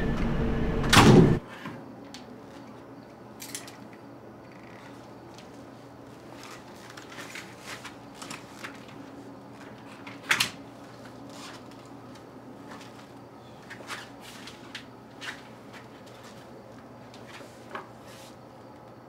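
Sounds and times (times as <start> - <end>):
low steady hum: 0.0 - 10.0
clothing rustle: 4.9 - 18.4.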